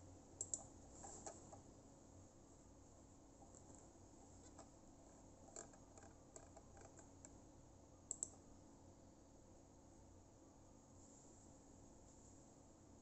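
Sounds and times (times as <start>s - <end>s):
computer mouse clicking: 0.4s - 1.6s, 5.5s - 7.4s, 8.1s - 8.4s.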